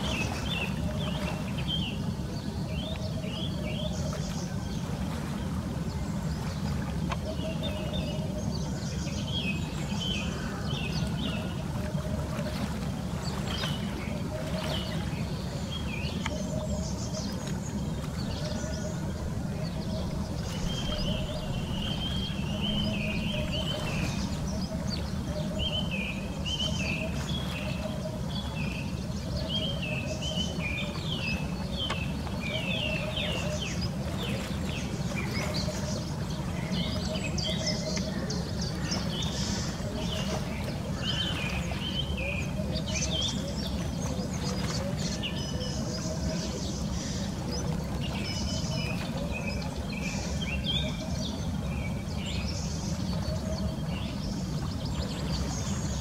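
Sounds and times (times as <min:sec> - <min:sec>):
low outdoor rumble: 0:16.4 - 0:35.2.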